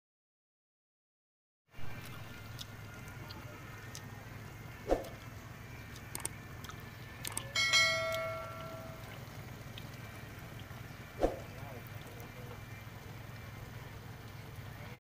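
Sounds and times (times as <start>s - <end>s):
button clicks: 6.1s - 6.3s
bell chime: 7.5s - 9.2s.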